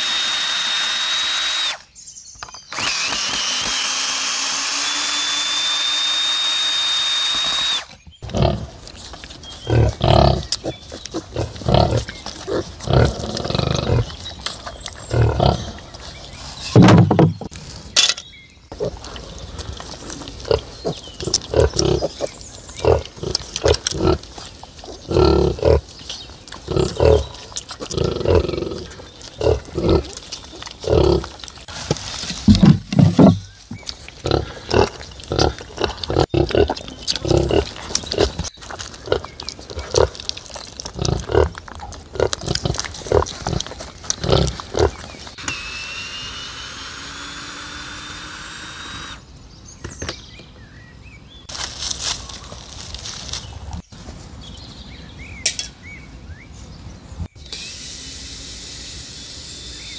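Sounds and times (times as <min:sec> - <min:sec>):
chainsaw running: 0:00.0 - 0:01.8, 0:02.7 - 0:07.9, 0:44.3 - 0:49.2, 0:57.4 - 0:59.9
sow grunting: 0:08.2 - 0:16.8, 0:18.7 - 0:45.2.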